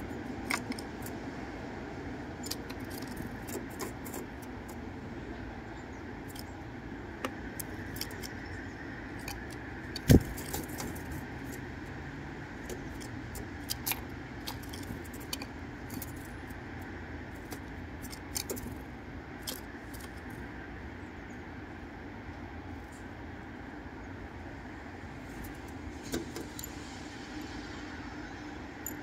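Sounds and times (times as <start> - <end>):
beak and feet tapping on wood: 7.2 - 11.7.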